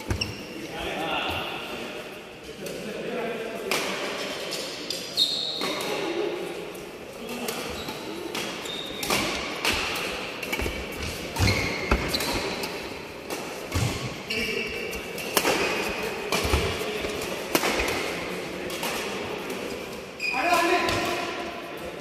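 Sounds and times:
shoes squeaking on court: 0:00.0 - 0:00.7, 0:04.9 - 0:05.9, 0:07.6 - 0:09.2, 0:10.5 - 0:12.8.

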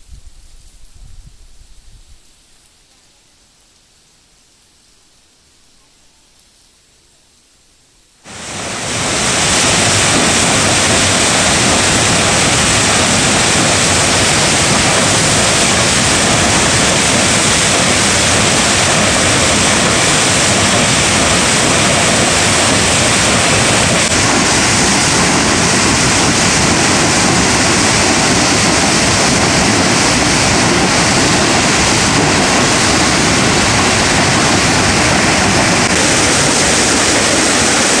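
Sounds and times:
water churning over rocks: 0:08.3 - 0:38.0
waterfall rushing: 0:08.3 - 0:38.0.

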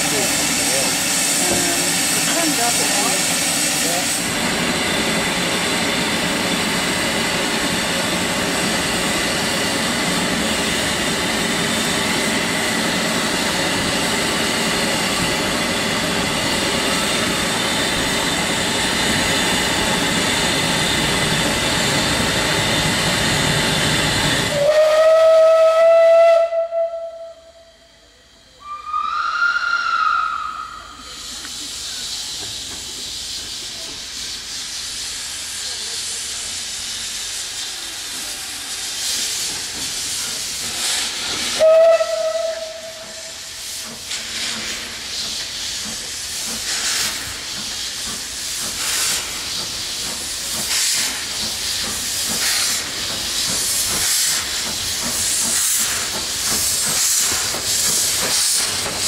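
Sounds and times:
steam hissing: 0:00.0 - 0:26.8, 0:28.6 - 0:59.0
steam whistle: 0:24.5 - 0:27.9, 0:28.6 - 0:31.2, 0:41.5 - 0:43.4.

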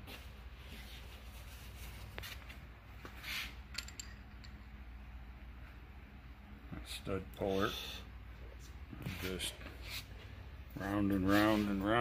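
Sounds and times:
low steady hum: 0:00.0 - 0:12.0
light metal clicks and clinks: 0:03.7 - 0:04.7.

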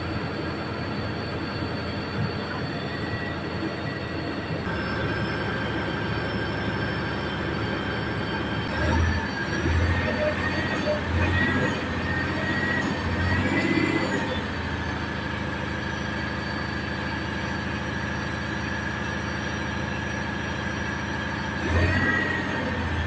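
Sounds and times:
diesel truck engine idling: 0:00.0 - 0:23.0
steady high whine: 0:00.0 - 0:23.0.

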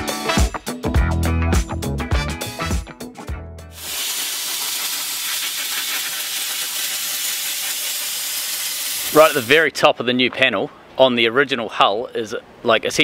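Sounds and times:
sandblaster nozzle hissing: 0:03.8 - 0:09.6.

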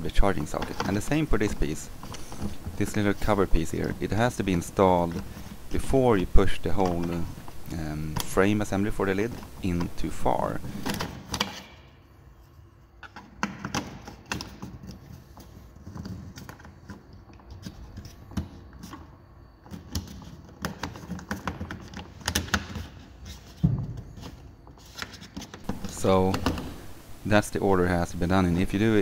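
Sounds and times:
plastic parts clicking and knocking: 0:00.1 - 0:05.5, 0:13.0 - 0:18.6, 0:19.6 - 0:23.0.

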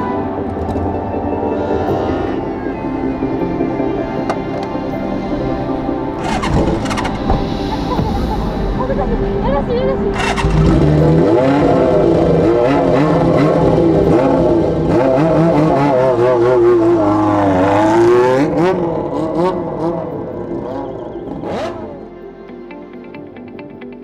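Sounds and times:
motorcycle engine revving in blips: 0:06.2 - 0:08.2, 0:10.1 - 0:22.2.

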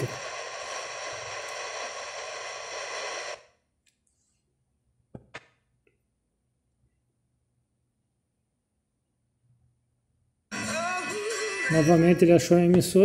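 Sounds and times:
radio static hiss: 0:00.0 - 0:03.5.

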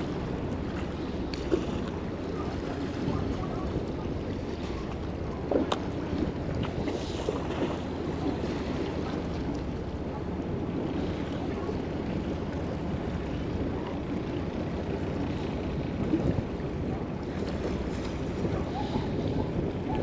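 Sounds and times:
sea washing around boat: 0:00.0 - 0:20.0
wind noise on microphone: 0:15.7 - 0:20.0.

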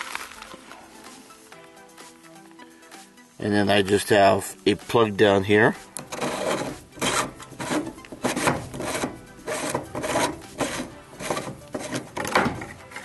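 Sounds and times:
plastic threads grinding: 0:06.0 - 0:13.0.

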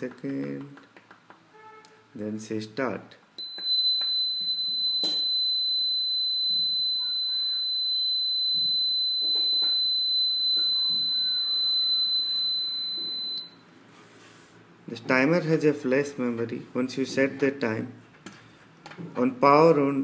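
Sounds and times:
high-pitched buzzer tone: 0:03.4 - 0:13.6.

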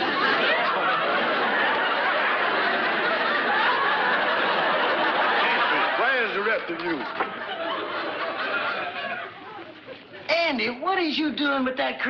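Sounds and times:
audience laughter: 0:00.0 - 0:10.3.

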